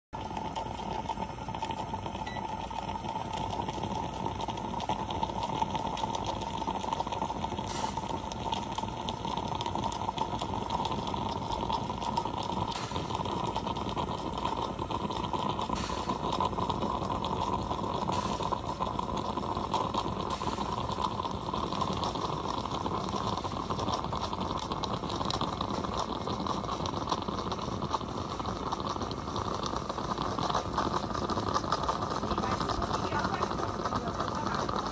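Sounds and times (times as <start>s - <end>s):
moka pot hissing: 0.2s - 34.9s.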